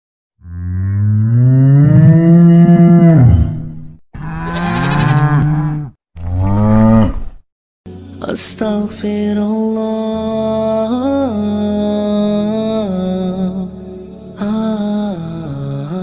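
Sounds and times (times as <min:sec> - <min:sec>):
cattle mooing: 0:00.4 - 0:03.6, 0:04.2 - 0:07.4.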